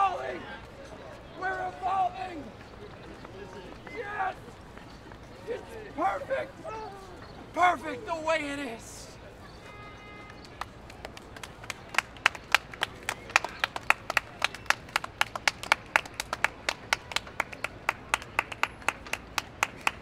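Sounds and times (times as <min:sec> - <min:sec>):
hands clapping in rhythm: 0:10.4 - 0:20.0.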